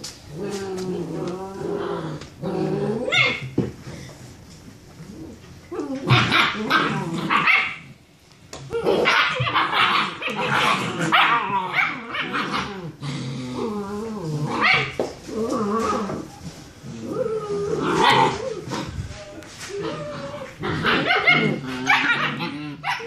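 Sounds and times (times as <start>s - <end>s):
puppies yipping barking and growling: 3.0s - 3.6s, 5.8s - 8.0s, 8.7s - 13.0s, 14.5s - 15.1s, 15.8s - 23.0s.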